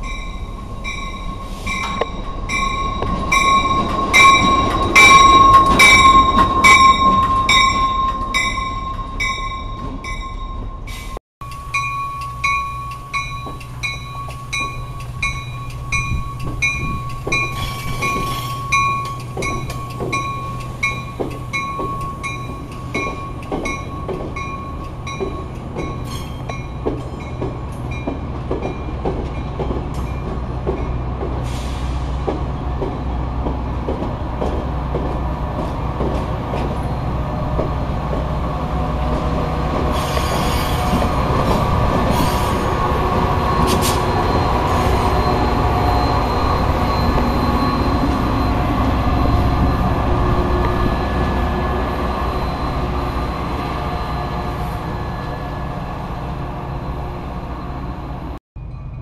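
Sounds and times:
locomotive bell ringing: 0.0s - 31.1s, 42.4s - 54.7s, 58.6s - 59.0s
low train rumble: 0.0s - 59.0s
train wheels clicking over rail joints: 10.9s - 55.3s.

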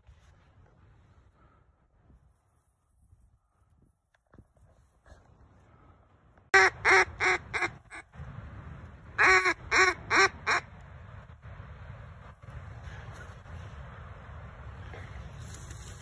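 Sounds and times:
duck call quacking notes: 6.6s - 8.1s, 9.2s - 10.7s.

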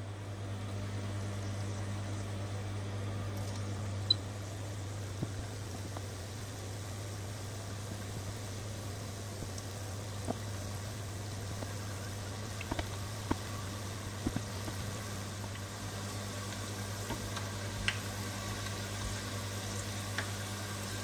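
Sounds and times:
doughnuts frying in oil: 0.0s - 21.0s
small pops and crackles: 5.1s - 6.2s, 9.4s - 20.4s.

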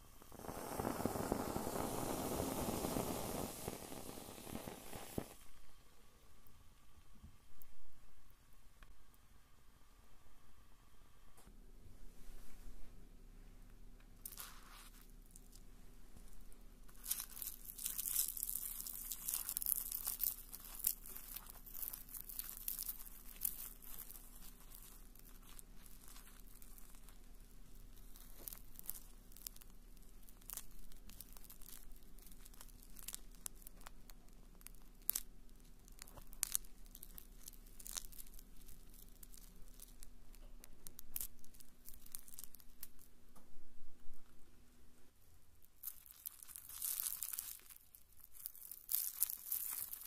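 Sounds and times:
marshmallows crackling as they burn: 0.0s - 7.8s, 14.0s - 43.2s, 45.4s - 50.0s.

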